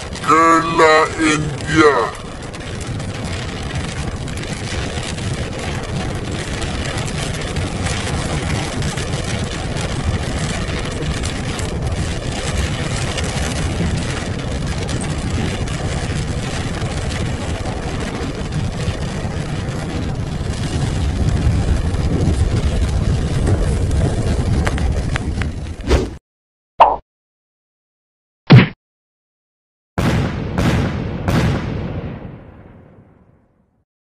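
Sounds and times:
car engine and road noise: 0.0 - 25.8.

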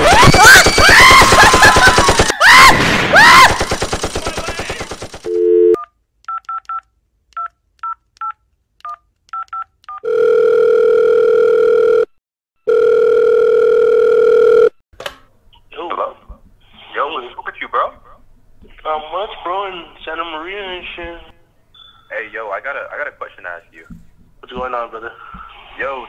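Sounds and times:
man laughing wildly: 0.0 - 3.5
phone ringing tone: 5.3 - 5.8, 10.0 - 14.8
phone dial tone: 5.3 - 6.8, 9.4 - 14.8.

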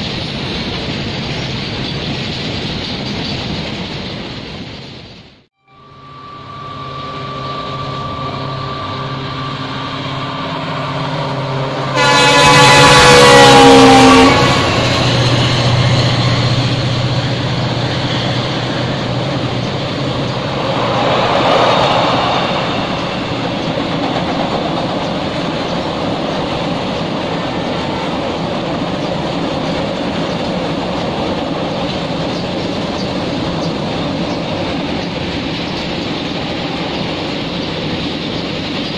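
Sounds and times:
loud train horn: 5.6 - 16.3, 20.3 - 24.0
diesel locomotive engine running: 5.8 - 38.9
wagons rumbling over steel bridge: 7.3 - 38.9
train wheel clatter: 12.4 - 38.9.

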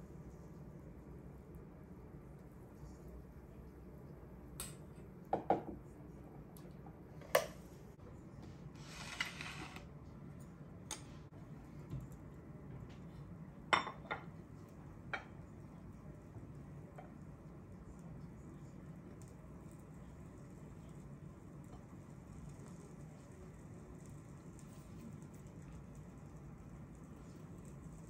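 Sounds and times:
dishes clinking on stone countertop: 5.3 - 5.8, 13.7 - 14.3.

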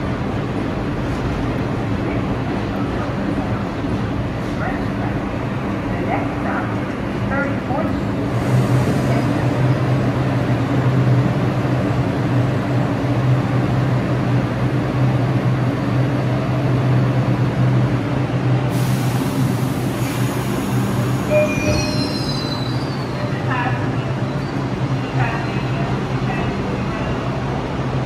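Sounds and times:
subway train drone and rumble: 0.0 - 28.0
hiss: 18.7 - 21.3
short high squeals: 21.3 - 23.2.

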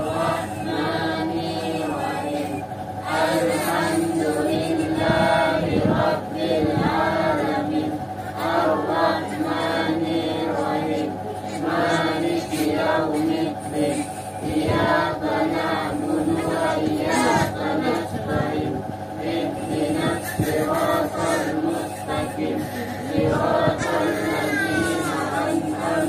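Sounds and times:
voices chanting together: 0.0 - 26.0
steady held tones: 6.6 - 26.0.

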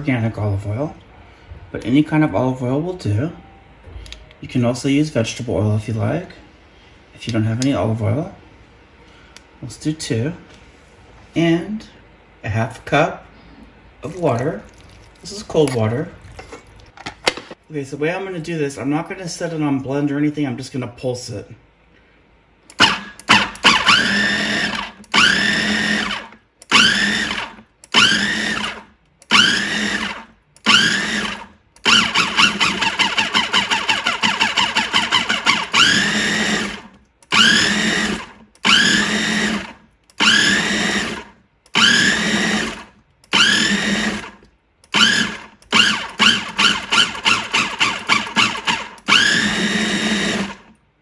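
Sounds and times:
food processor pulsing: 22.8 - 50.7.

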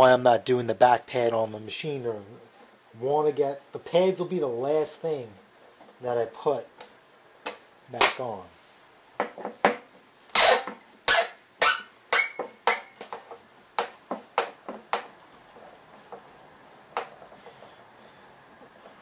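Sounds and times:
faint room noise: 0.0 - 19.0.

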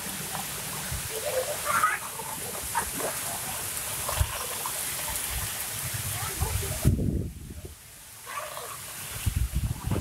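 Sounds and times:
water drips: 0.0 - 7.0
rain on trees and roof: 0.0 - 10.0.

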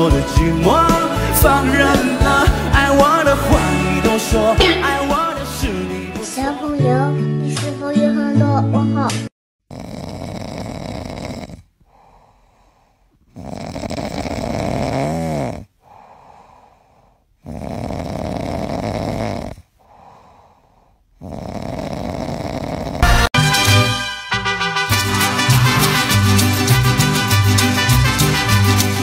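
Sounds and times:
dog snoring: 9.7 - 12.6, 13.2 - 23.0.

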